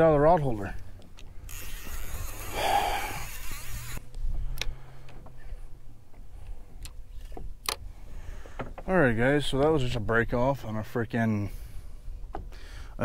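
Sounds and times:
steady low hum: 0:00.0 - 0:13.0
breathy exhale: 0:02.5 - 0:03.3, 0:07.9 - 0:08.6, 0:11.5 - 0:13.0.

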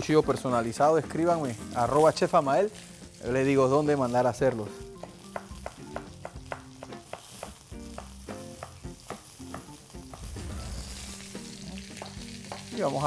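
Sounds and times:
chicken sizzling in a skillet: 0:00.0 - 0:13.0
cleaver chopping on wooden board: 0:05.0 - 0:10.4, 0:11.9 - 0:12.7.

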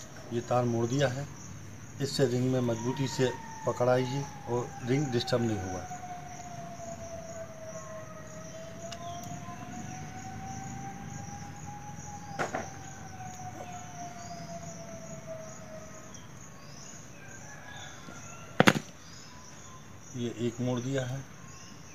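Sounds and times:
insects chirring: 0:00.0 - 0:21.9
distant siren-like tone: 0:02.0 - 0:18.6.

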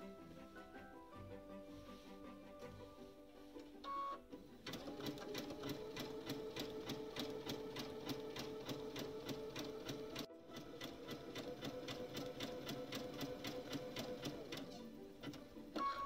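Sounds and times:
sewing machine stitching: 0:03.9 - 0:16.0.

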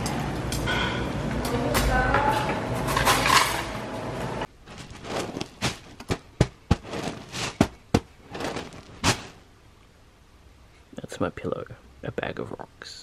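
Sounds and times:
pillow filling clicking and rustling: 0:04.6 - 0:09.4.

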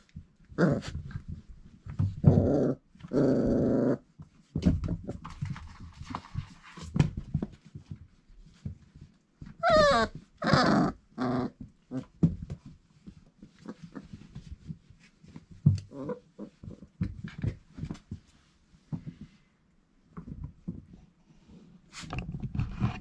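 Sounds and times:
paws scuffling and clicking: 0:04.2 - 0:10.6, 0:11.6 - 0:19.4.

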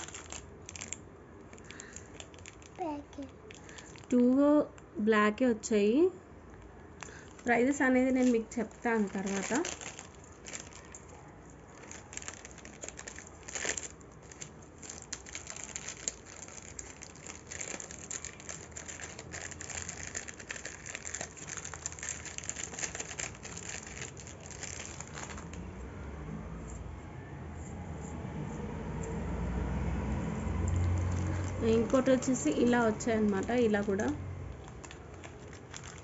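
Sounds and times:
plastic packaging crinkling: 0:00.0 - 0:04.4, 0:07.0 - 0:25.7, 0:30.5 - 0:36.0.

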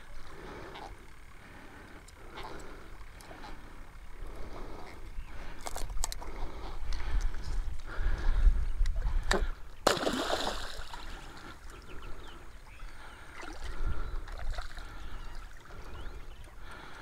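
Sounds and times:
wind rumbling on microphone: 0:04.4 - 0:09.8
fish splashing into water: 0:09.8 - 0:11.2.

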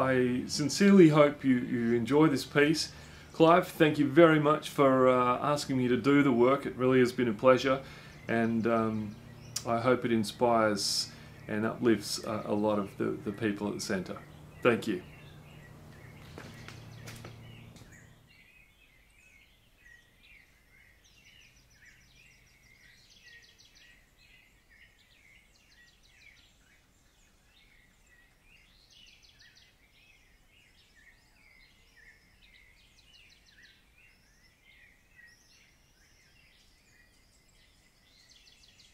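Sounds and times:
low hiss: 0:00.0 - 0:18.4
birds chirping and trilling: 0:00.0 - 0:38.9.

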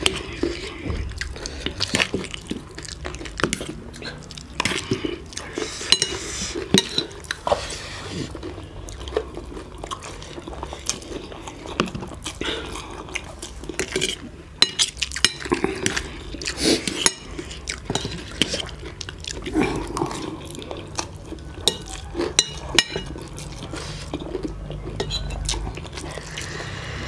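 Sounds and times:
wet eating sounds: 0:00.0 - 0:27.0
cutlery clinking on plates: 0:21.6 - 0:23.2, 0:25.0 - 0:25.5.

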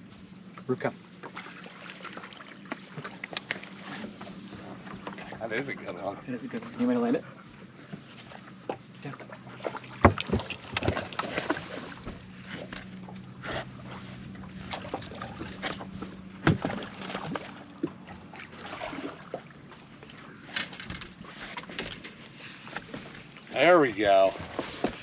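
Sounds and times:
steady low hum: 0:00.0 - 0:25.0
fish splashing at surface: 0:16.5 - 0:19.5.

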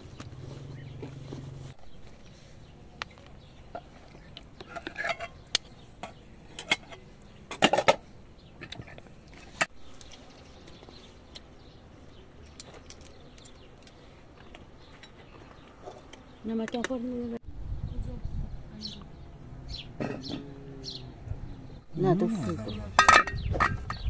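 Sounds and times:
utensils clinking against dishes: 0:23.0 - 0:24.0.

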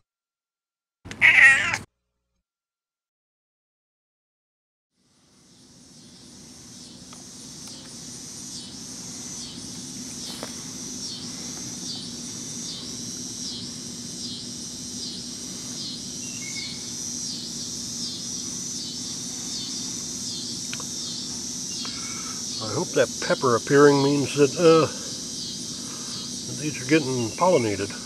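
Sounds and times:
insects shrilling in pulses: 0:01.2 - 0:01.8, 0:05.1 - 0:28.0
steady low hum: 0:05.0 - 0:28.0.

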